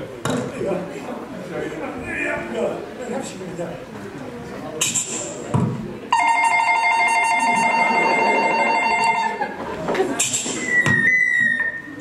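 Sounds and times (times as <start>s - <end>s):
telephone ringing: 6.1s - 9.4s.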